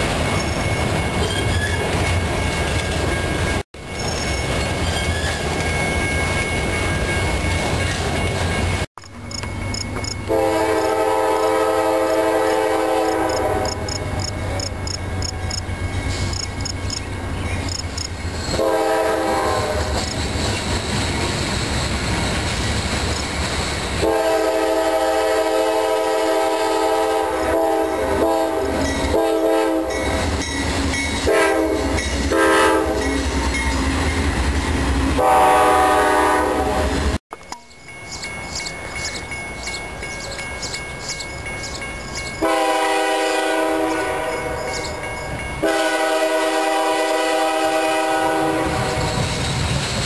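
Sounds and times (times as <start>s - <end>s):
low train rumble: 0.0s - 50.0s
locomotive air horn blasts: 10.3s - 14.6s, 18.5s - 20.1s, 24.0s - 30.2s, 31.2s - 33.3s, 35.2s - 37.2s, 42.4s - 44.7s, 45.6s - 49.0s.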